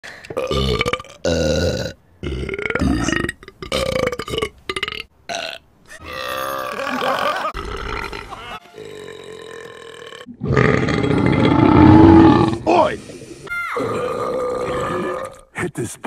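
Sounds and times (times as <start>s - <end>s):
cartoon burps: 0.3s - 12.5s.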